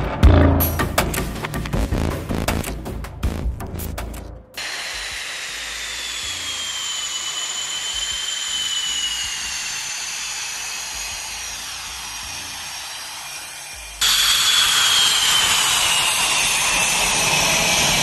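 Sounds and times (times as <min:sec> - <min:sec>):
jet engines whining: 0:04.6 - 0:18.0.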